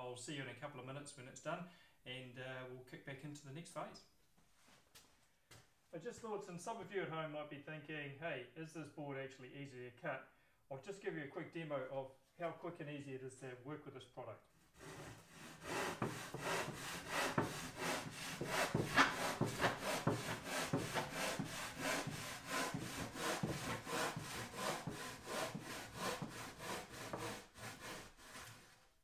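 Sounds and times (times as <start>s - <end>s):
handsaw cutting insulation board: 14.8s - 29.0s.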